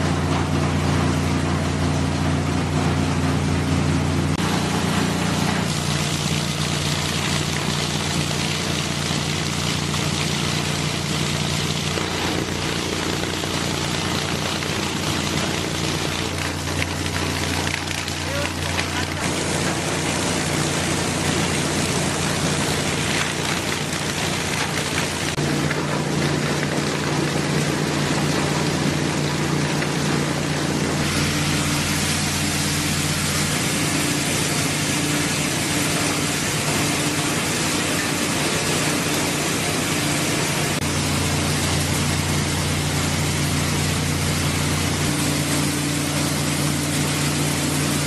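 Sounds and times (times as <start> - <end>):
electric motors humming: 0.0 - 48.0
wash water rushing and splashing: 0.0 - 48.0.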